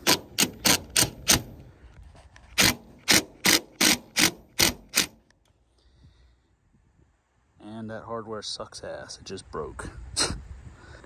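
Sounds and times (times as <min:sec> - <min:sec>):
impact driver bursts: 0:00.0 - 0:01.6, 0:02.5 - 0:05.2.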